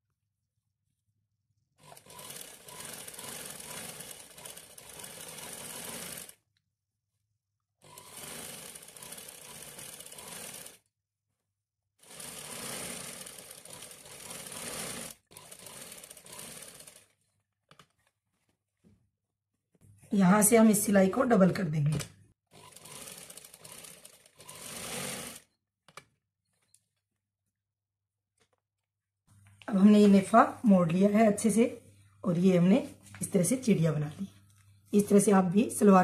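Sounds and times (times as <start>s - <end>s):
sewing machine stitching: 1.8s - 6.4s, 7.8s - 10.9s, 12.0s - 18.1s, 22.5s - 25.6s.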